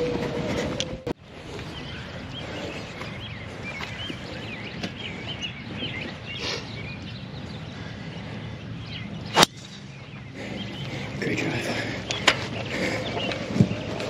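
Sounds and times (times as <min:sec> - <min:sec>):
outdoor background noise: 0:00.0 - 0:14.0
small birds chirping: 0:01.2 - 0:14.0
golf club striking ball: 0:09.3 - 0:09.8.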